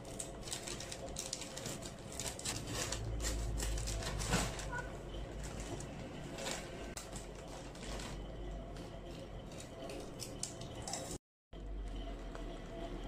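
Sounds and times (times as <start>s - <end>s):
chip bag crinkling: 0.0s - 4.8s
low steady hum: 0.0s - 13.0s.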